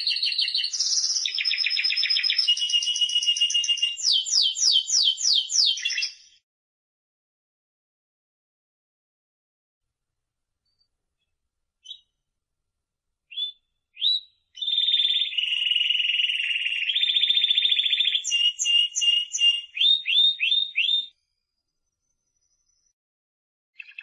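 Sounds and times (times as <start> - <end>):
canary singing trills: 0.0 - 6.4, 11.8 - 12.1, 13.3 - 21.2, 23.8 - 24.0.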